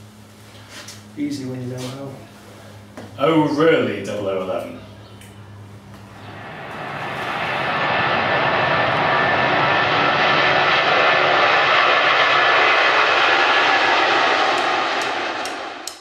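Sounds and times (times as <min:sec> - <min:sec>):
jet airliner engines on runway: 0:05.4 - 0:16.0.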